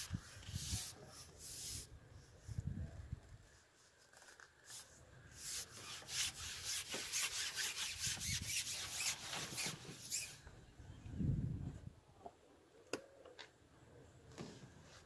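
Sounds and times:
fishing pole rubbing through hands: 3.6 - 10.4.

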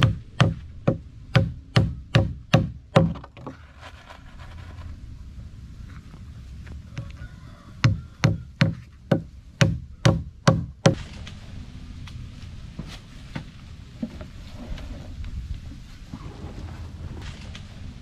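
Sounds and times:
hammer striking nails: 0.0 - 3.5, 7.8 - 11.0.

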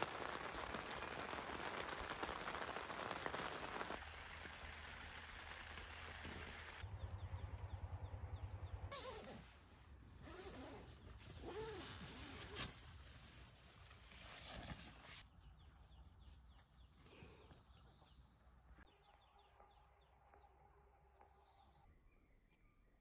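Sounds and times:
zipper rasp: 8.9 - 9.5, 10.2 - 12.7
fabric rustling: 9.0 - 15.2.

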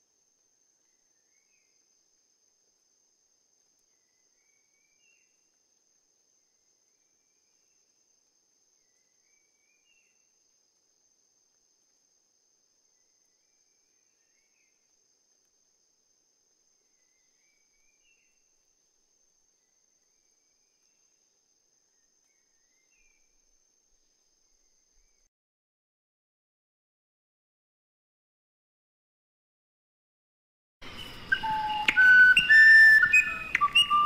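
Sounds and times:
high-pitched insect trill: 30.8 - 34.0.

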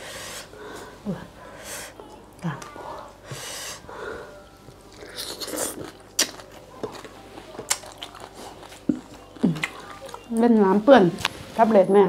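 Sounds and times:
person slurping and crunching: 4.9 - 7.1.

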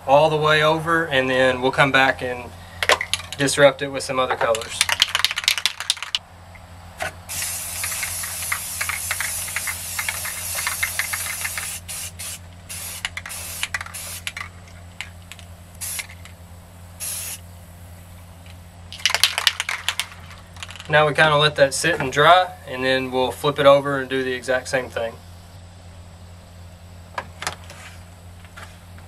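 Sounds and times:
spray paint can hissing: 4.8 - 6.2, 7.3 - 14.5, 15.7 - 16.4, 17.0 - 17.5.

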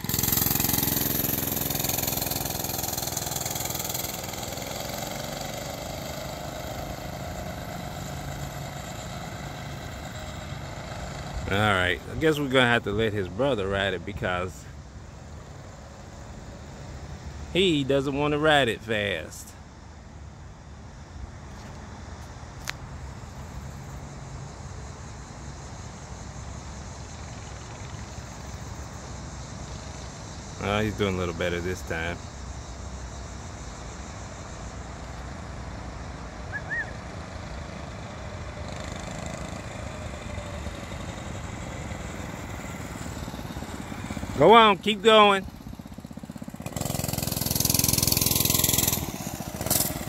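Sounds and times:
small motorbike engine running: 0.0 - 14.5, 33.3 - 50.0
even hiss: 0.0 - 50.0.

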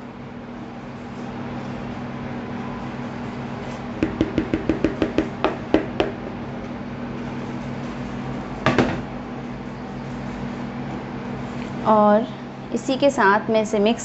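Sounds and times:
double knock: 4.0 - 6.2.

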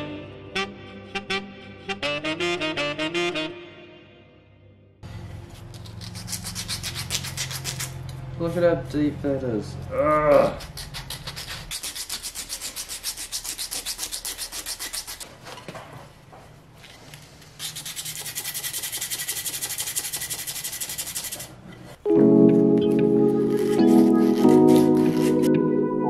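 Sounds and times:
sandpaper rubbing on wood: 5.8 - 8.0, 10.5 - 15.2, 17.6 - 21.6, 23.5 - 25.5.

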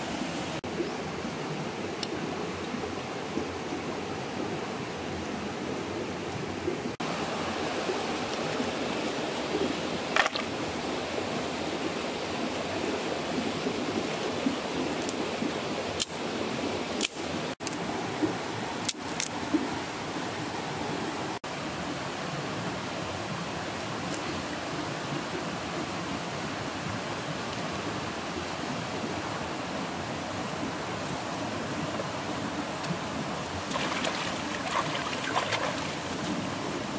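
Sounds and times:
river flowing: 0.0 - 36.9.

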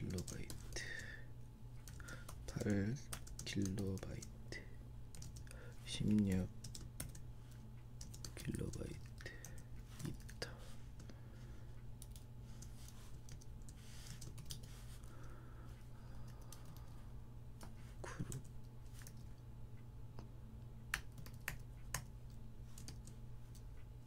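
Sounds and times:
faint low hum: 0.0 - 24.0
keyboard typing: 1.8 - 4.3, 5.1 - 7.2, 8.0 - 10.4, 12.0 - 14.8, 20.9 - 22.1, 22.7 - 23.6.

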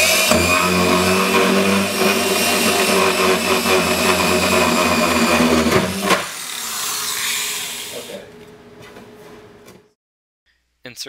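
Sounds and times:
power drill boring through plastic: 0.0 - 8.1.

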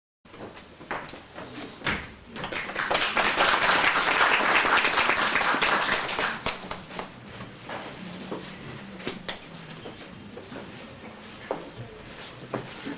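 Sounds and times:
audience applauding: 2.4 - 6.8.

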